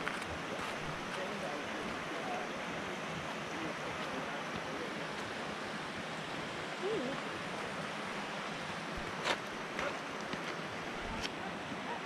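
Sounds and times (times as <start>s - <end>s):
creek water rushing over rocks: 0.0s - 12.0s
faint voice: 6.8s - 7.3s.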